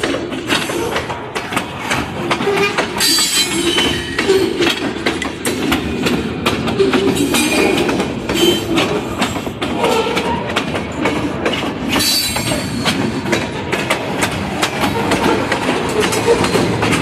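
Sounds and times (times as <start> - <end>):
train rolling roar: 0.0 - 17.0
train wheels clattering over rails: 0.0 - 17.0
wheels squealing: 6.7 - 12.9.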